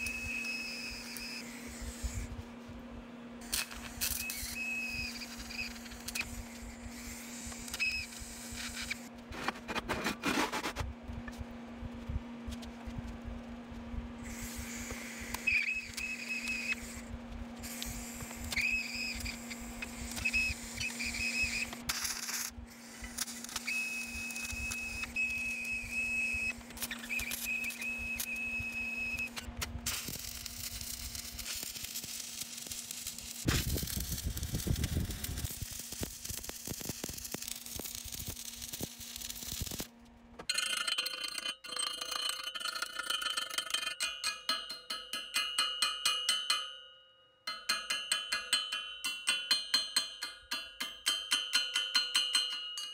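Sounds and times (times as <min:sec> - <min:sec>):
welding arc crackling: 0:00.0 - 0:02.4, 0:03.4 - 0:09.2, 0:14.2 - 0:41.3
welder machine hum: 0:00.0 - 0:09.7, 0:10.5 - 0:45.3
chipping hammer knocking steel: 0:43.0 - 0:52.9.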